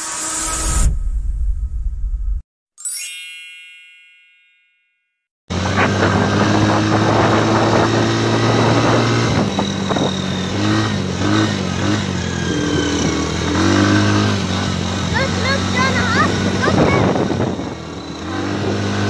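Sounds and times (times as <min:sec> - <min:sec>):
vehicle engine running: 0:05.5 - 0:19.0.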